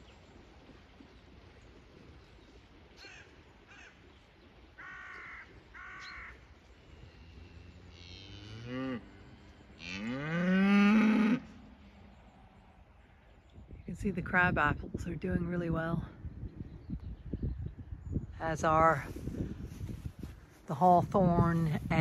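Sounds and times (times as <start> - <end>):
cattle mooing: 7.0 - 11.6.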